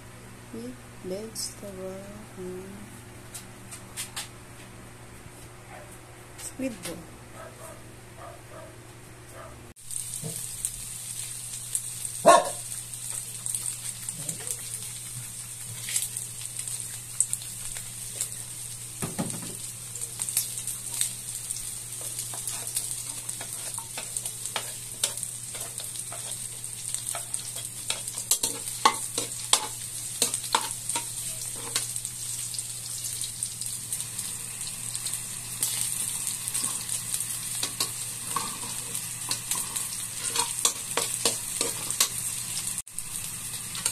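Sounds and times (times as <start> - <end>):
food sizzling in hot oil: 9.8 - 43.9
metal spatula scraping pan: 37.8 - 42.2.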